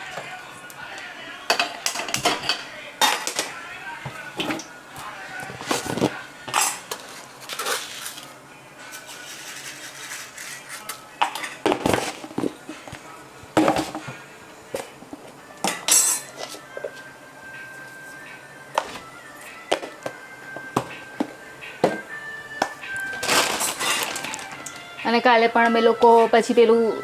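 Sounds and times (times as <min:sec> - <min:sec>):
kitchen utensils and dishes clattering: 0:01.5 - 0:03.6, 0:05.4 - 0:08.3, 0:08.9 - 0:13.0, 0:13.6 - 0:17.0, 0:23.0 - 0:24.8.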